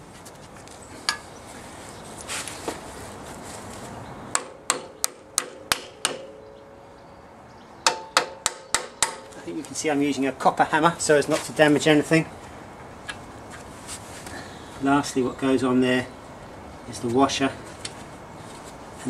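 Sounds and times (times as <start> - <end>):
hammer knocking metal shaft: 4.3 - 6.4, 7.8 - 9.3.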